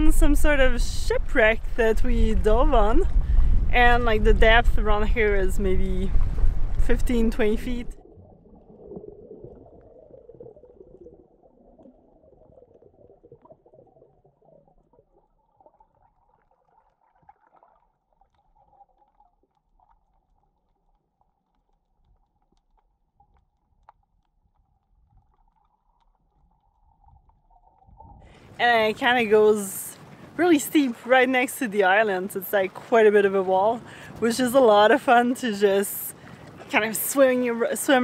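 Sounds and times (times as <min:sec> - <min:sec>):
faint low underwater rumble: 0:00.0 - 0:31.2
small underwater clicks: 0:08.4 - 0:28.4.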